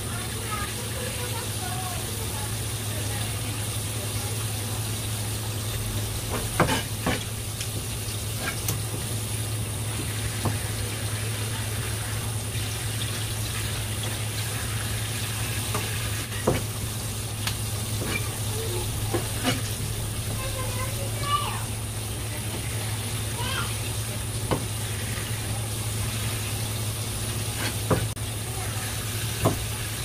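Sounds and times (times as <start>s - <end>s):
water spray hissing: 0.4s - 30.0s
knife tapping on cutting board: 24.5s - 24.7s.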